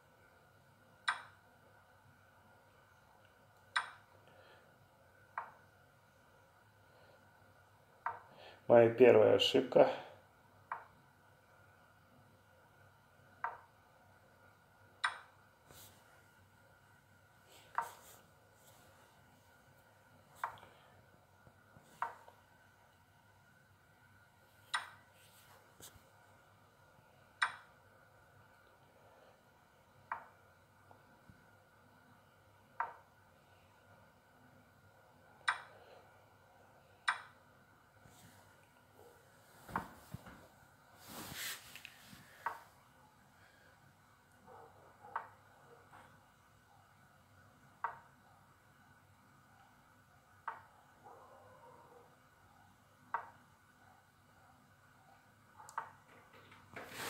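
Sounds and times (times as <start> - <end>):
wooden piece clicks: 1.1 - 1.4, 3.7 - 4.0, 15.0 - 15.3, 35.5 - 35.7, 37.1 - 37.3.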